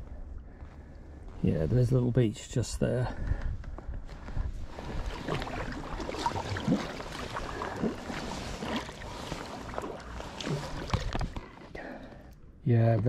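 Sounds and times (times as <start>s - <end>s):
paddle splashing in water: 4.7s - 11.8s.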